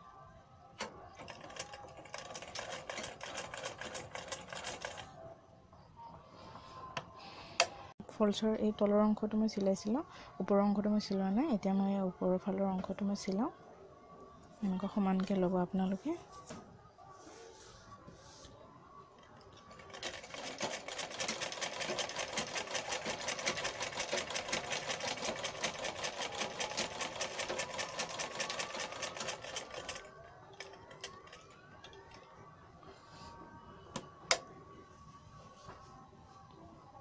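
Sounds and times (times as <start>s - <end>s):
sewing machine stitching: 1.2s - 5.1s, 19.7s - 31.4s.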